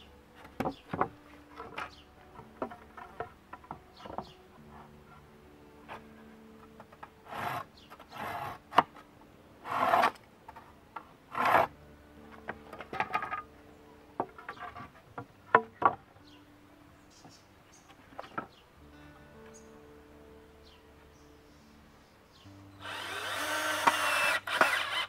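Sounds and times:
wooden boards scraping: 0:00.4 - 0:04.9, 0:11.3 - 0:11.7, 0:12.3 - 0:13.5, 0:14.2 - 0:16.0.

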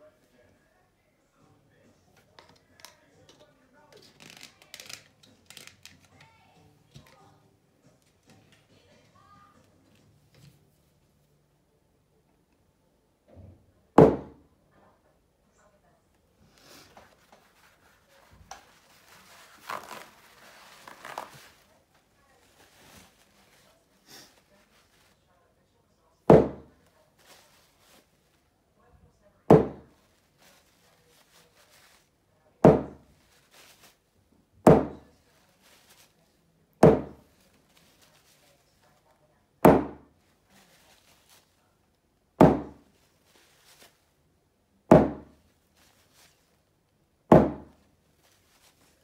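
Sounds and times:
rustling from handling: 0:16.5 - 0:25.2, 0:26.9 - 0:28.4, 0:29.9 - 0:32.1, 0:33.1 - 0:34.0, 0:35.0 - 0:36.3, 0:37.2 - 0:39.1, 0:40.2 - 0:41.7, 0:42.8 - 0:44.1, 0:45.4 - 0:46.6, 0:47.8 - 0:49.0
hammer hitting wet paint on board: 0:26.3 - 0:26.7, 0:29.5 - 0:29.9, 0:32.7 - 0:33.0, 0:34.7 - 0:35.0, 0:36.8 - 0:37.2, 0:39.7 - 0:40.0, 0:42.4 - 0:42.8, 0:44.9 - 0:45.3, 0:47.3 - 0:47.7.

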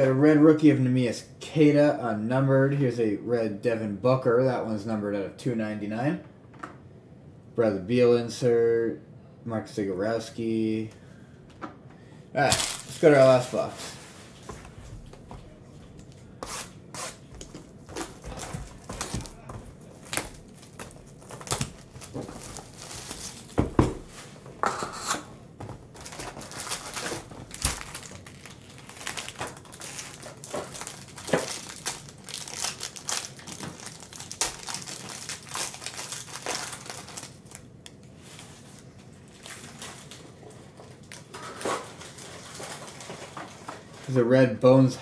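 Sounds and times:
foil packs crinkling and tearing: 0:12.4 - 0:14.0, 0:17.4 - 0:24.0, 0:25.8 - 0:44.2
cardboard rustling: 0:17.0 - 0:24.4, 0:25.6 - 0:37.4.

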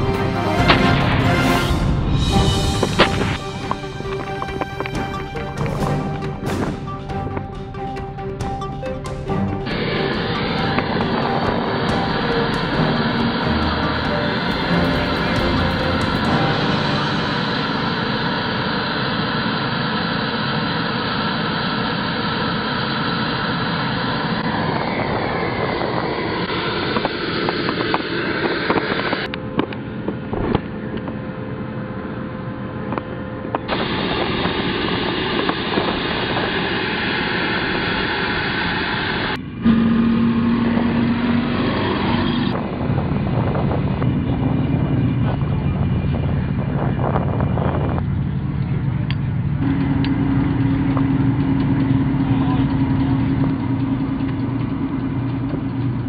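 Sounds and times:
track clatter: 0:00.0 - 0:18.2, 0:39.3 - 0:56.0
heavy tracked vehicle engine: 0:00.0 - 0:56.0.

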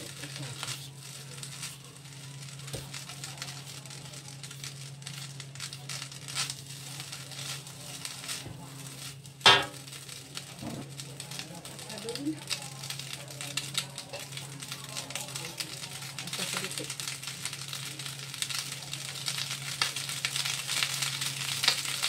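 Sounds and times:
light sizzling: 0:00.0 - 0:22.0
spatula scraping a wok: 0:04.7 - 0:10.0
spatula clanging on wok: 0:09.5 - 0:09.9.

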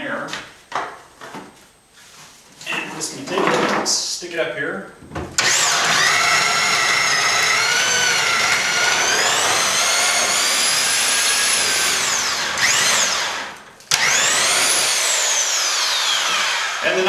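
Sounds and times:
right-angle drill motor whine: 0:05.4 - 0:17.0.

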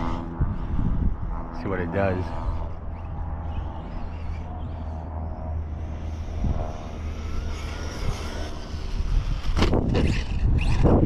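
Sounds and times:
wind rumbling on microphone: 0:00.0 - 0:11.0
toy truck electric motor whine: 0:05.8 - 0:11.0.

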